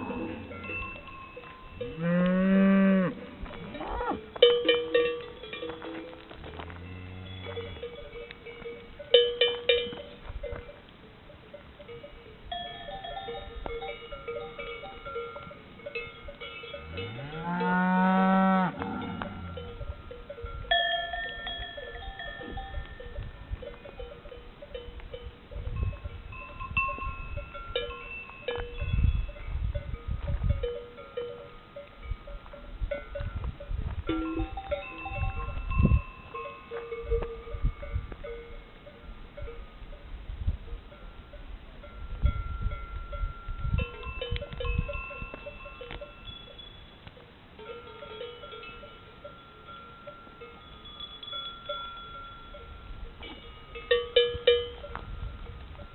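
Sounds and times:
cow mooing: 0.0 - 0.6, 2.0 - 4.2, 16.8 - 19.6
cowbells clanking: 0.0 - 55.9.

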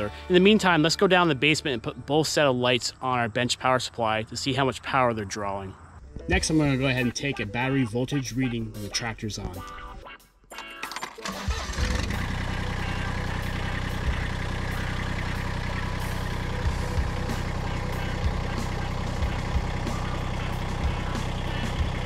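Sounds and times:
tractor diesel engine idling: 11.2 - 22.0.

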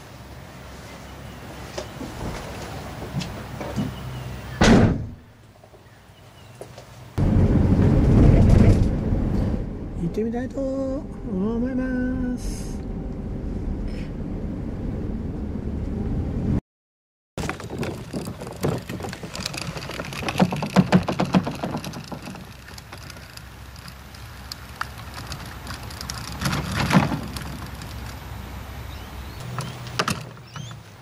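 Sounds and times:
low hum inside car: 7.2 - 16.6
kayak trolley rattling over grass: 17.4 - 31.0.

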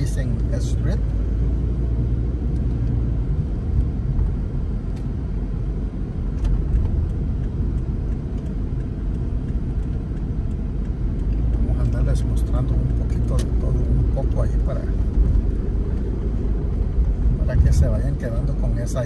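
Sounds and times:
car engine and road rumble: 0.0 - 19.0.

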